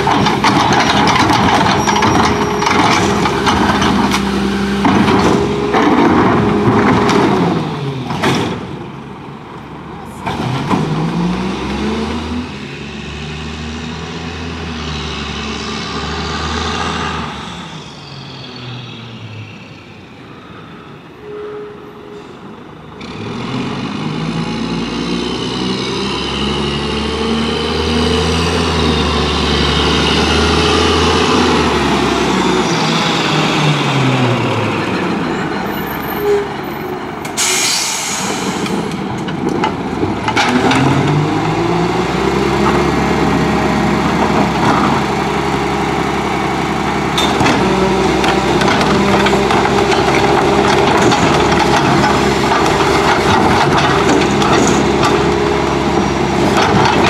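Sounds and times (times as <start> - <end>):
garbage truck diesel engine accelerating: 0.0 - 21.1, 22.2 - 57.0
air brake hiss: 37.3 - 38.9.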